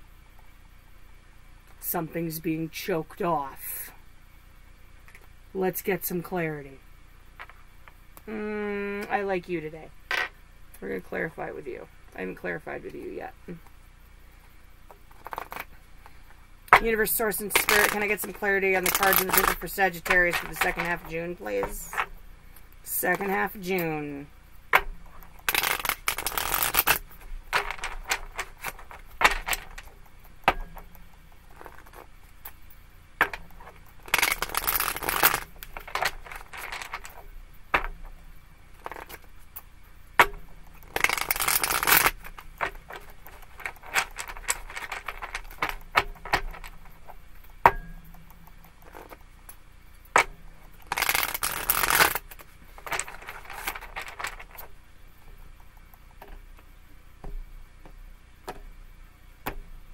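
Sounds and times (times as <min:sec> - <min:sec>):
cards tapping and clicking: 0:14.9 - 0:15.7, 0:16.7 - 0:22.1, 0:24.7 - 0:32.6, 0:33.2 - 0:38.2, 0:38.8 - 0:39.3, 0:40.2 - 0:47.0, 0:48.4 - 0:49.2, 0:50.1 - 0:54.7
cards shuffling: 0:14.9 - 0:32.6, 0:33.2 - 0:38.2, 0:38.8 - 0:39.4, 0:40.2 - 0:47.2, 0:48.8 - 0:49.2, 0:50.1 - 0:54.7.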